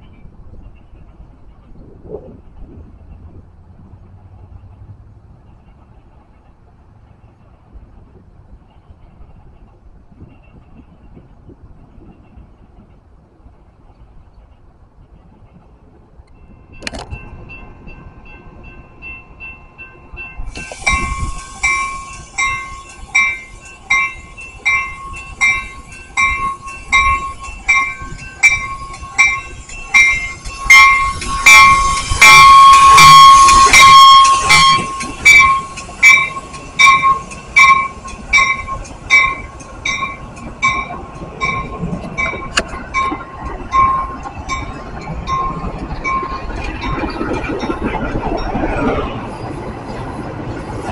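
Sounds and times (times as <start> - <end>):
train cars rolling past: 0.0 - 50.9
crossing warning bell ringing: 16.3 - 49.7
train horn: 31.3 - 36.4.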